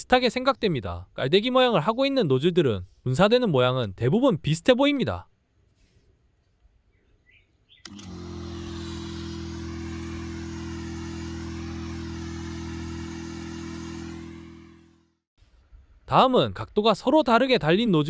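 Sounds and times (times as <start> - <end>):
pump switch click: 7.8 - 9.2
electric pump humming: 7.8 - 15.2
spray hissing from nozzle: 7.9 - 14.8.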